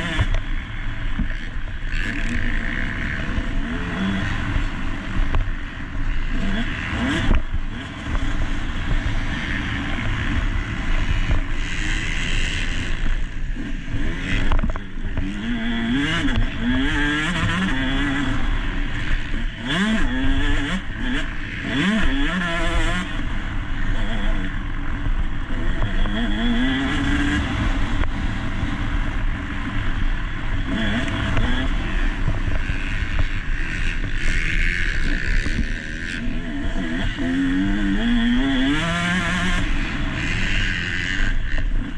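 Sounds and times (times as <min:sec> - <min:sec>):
dirt bike engine revving: 0:00.0 - 0:41.9
wind noise on microphone: 0:24.4 - 0:41.9.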